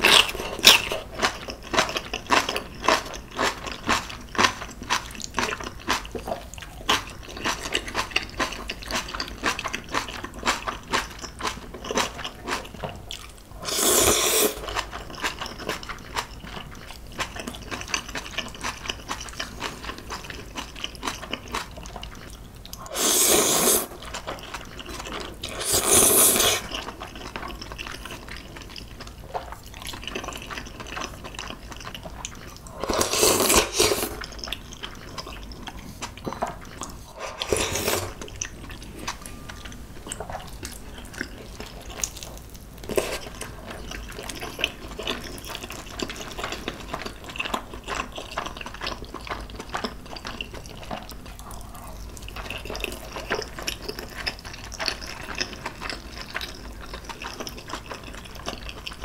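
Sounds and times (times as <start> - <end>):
wet chewing and mouth clicks: 0.0 - 23.0, 23.8 - 59.0
loud slurp: 22.9 - 24.0, 25.5 - 26.7.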